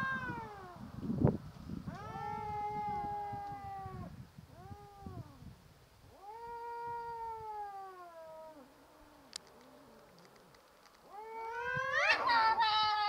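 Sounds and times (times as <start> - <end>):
cats yowling: 0.0 - 0.8, 1.9 - 5.4, 6.1 - 9.2, 11.0 - 13.0.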